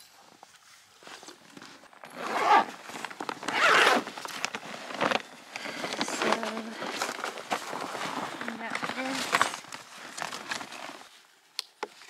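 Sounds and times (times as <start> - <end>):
bag rustling: 1.0 - 11.3
zipper pulled open: 1.6 - 11.0.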